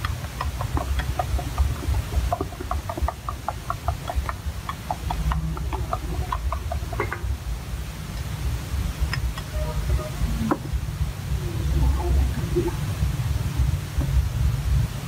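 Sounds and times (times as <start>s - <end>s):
spoon beating eggs in bowl: 0.0s - 7.5s
low rumble: 0.0s - 15.0s.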